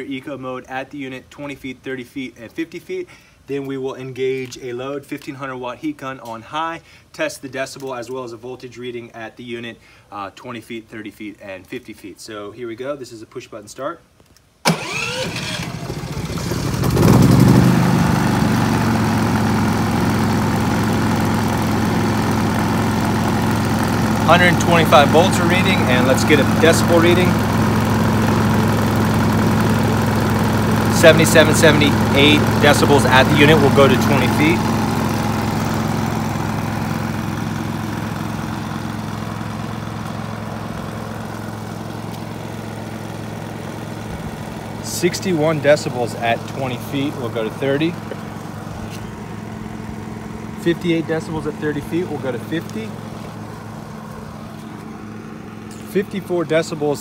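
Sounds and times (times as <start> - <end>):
generator engine idling: 14.6 - 57.0.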